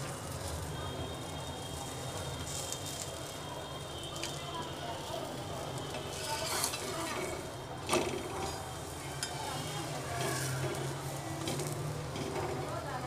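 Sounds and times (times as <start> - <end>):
flatbread sizzling on a griddle: 0.0 - 13.0
metal spatula scraping: 6.1 - 7.4, 8.4 - 12.4.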